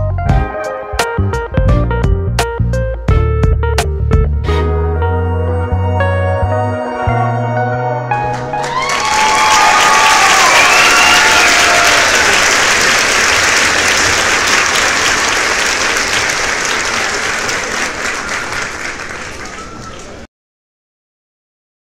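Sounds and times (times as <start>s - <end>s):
crowd applauding: 8.2s - 20.3s.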